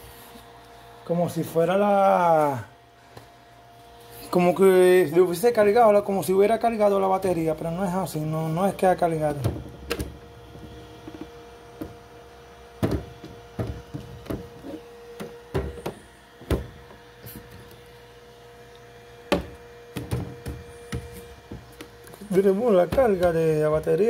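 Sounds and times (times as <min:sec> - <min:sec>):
steady hum: 0:00.0 - 0:24.0
plastic battery packs knocking: 0:12.8 - 0:14.6, 0:19.3 - 0:21.7, 0:22.8 - 0:23.4.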